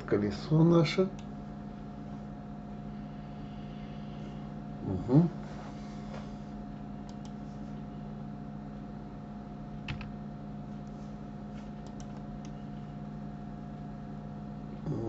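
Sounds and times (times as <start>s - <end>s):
low hum: 0.0s - 15.0s
computer mouse clicks: 7.0s - 7.4s, 11.8s - 12.6s.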